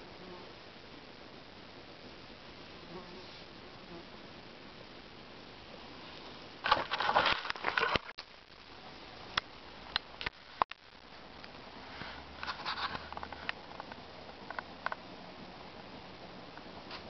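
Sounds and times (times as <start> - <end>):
dry leaves and twigs rustling: 6.6 - 8.1.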